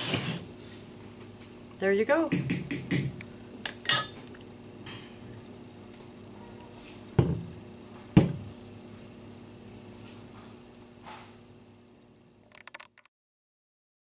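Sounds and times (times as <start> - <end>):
faint steady hum: 0.0 - 13.0
dull knocks: 7.2 - 7.5, 8.1 - 8.5.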